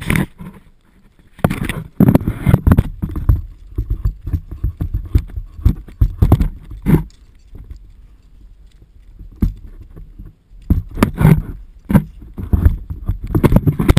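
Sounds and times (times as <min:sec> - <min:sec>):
camera housing knocking and rattling: 0:01.4 - 0:06.9, 0:10.6 - 0:13.9.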